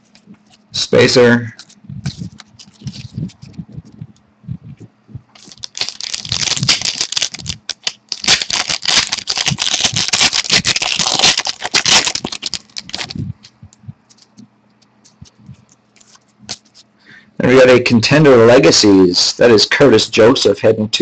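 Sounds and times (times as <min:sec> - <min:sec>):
plastic packaging crinkling: 0:01.5 - 0:04.0, 0:05.3 - 0:16.9.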